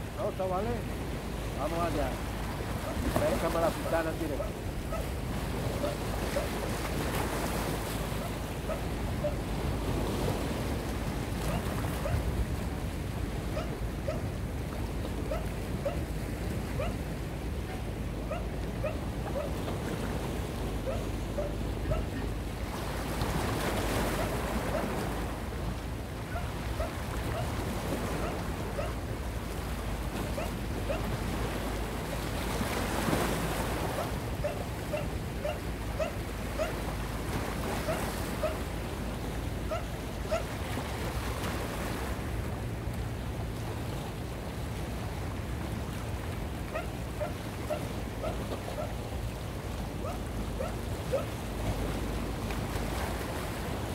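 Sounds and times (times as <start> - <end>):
waves washing against rocks: 0.0 - 53.9
wind on microphone: 0.0 - 53.9.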